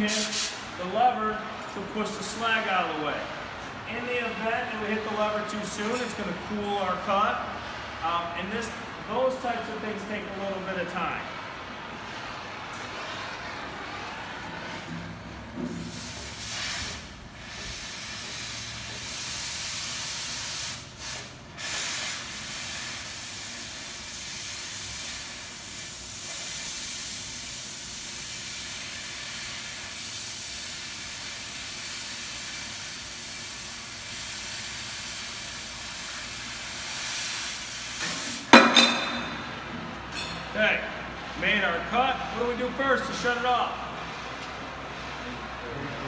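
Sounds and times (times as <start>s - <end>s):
cutting torch hissing: 15.8s - 39.0s.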